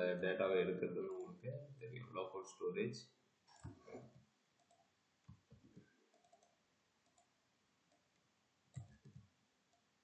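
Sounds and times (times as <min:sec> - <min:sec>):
mouse and keyboard clicks: 0:08.7 - 0:09.3.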